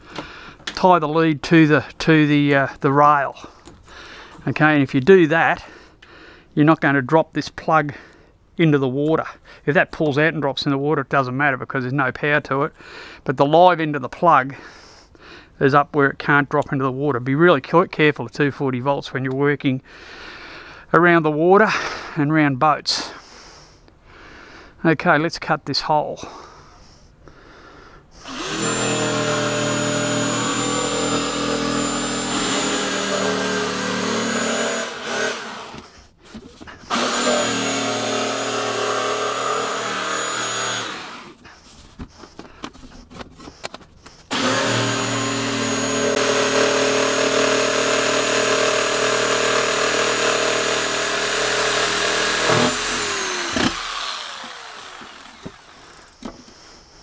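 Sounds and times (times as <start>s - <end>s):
jigsaw cutting plywood: 28.2s - 35.9s, 36.9s - 41.4s, 44.3s - 56.2s.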